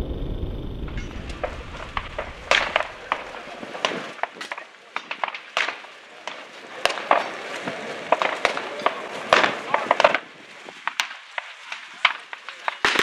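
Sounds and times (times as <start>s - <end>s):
gunshots: 0.0s - 4.0s.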